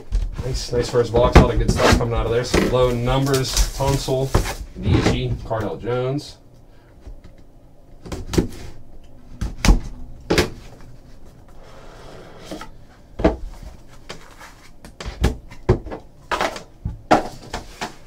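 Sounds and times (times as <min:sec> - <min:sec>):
cardboard and plastic rustling: 0:00.0 - 0:05.7, 0:12.5 - 0:18.0.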